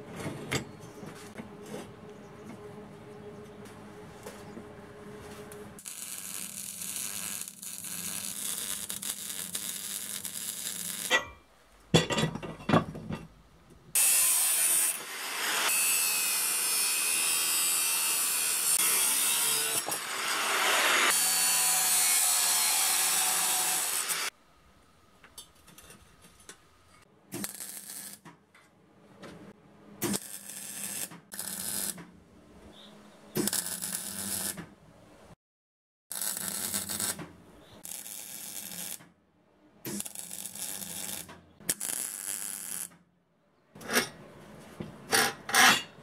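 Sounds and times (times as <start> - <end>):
metal knocks clattering: 12.0 - 13.4
angle grinder cutting steel: 14.0 - 24.3.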